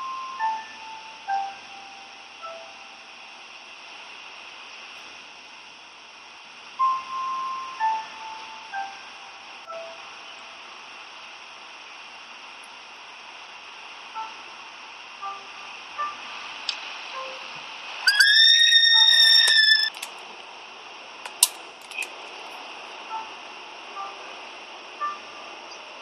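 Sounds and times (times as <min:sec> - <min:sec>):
steady hiss: 0:00.0 - 0:26.0
sharp click: 0:21.3 - 0:22.1.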